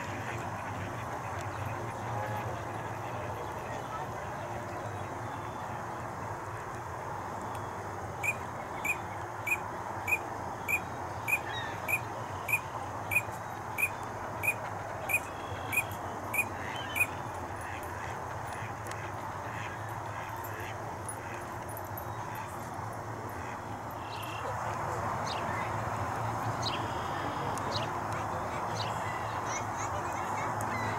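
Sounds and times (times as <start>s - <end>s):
duck whistled calls: 8.2s - 17.2s.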